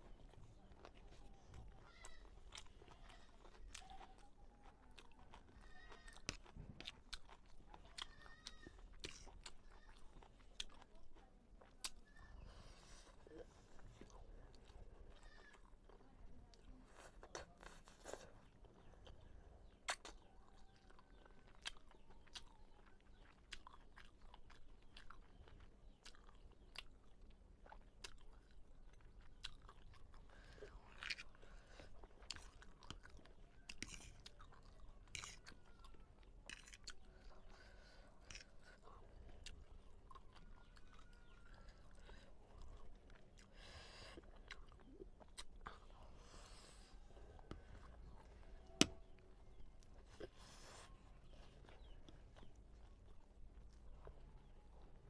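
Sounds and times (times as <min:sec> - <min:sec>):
chewing and slurping noodles: 0:16.8 - 0:55.0.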